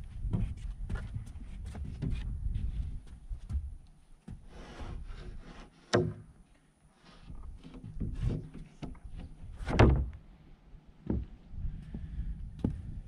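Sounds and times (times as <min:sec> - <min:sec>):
plywood scraping on wooden deck: 0:04.3 - 0:06.4, 0:07.0 - 0:10.2
heavy thud of plywood: 0:09.6 - 0:10.2.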